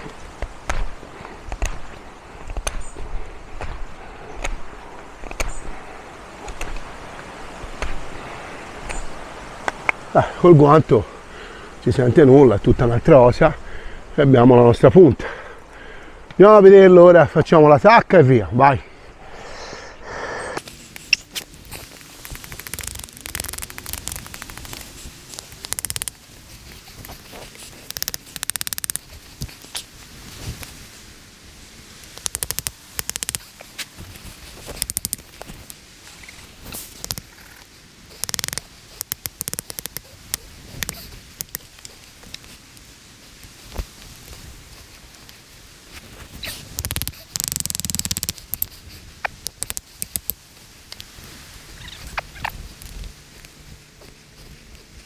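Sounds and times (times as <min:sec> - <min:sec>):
knife scraping wood: 0:00.0 - 0:05.7, 0:07.7 - 0:08.1.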